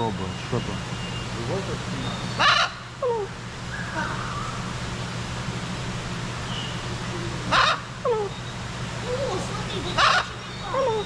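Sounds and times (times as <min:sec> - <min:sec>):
parrot squawking: 0:02.3 - 0:02.8, 0:07.5 - 0:08.4, 0:09.8 - 0:11.0.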